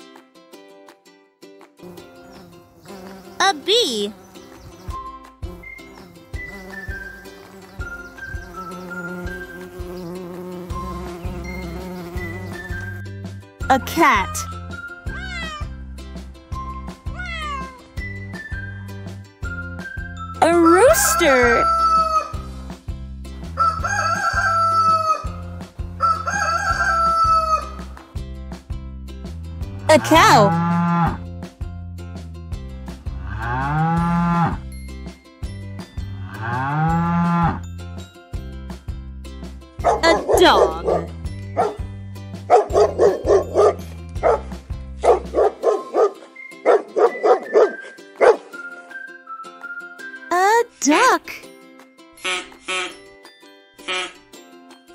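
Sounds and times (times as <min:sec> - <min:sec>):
light background music: 0:00.0 - 0:54.9
rooster crowing: 0:21.1 - 0:22.4, 0:23.6 - 0:25.3, 0:26.0 - 0:27.8
dog barking: 0:39.8 - 0:41.8, 0:42.5 - 0:48.5.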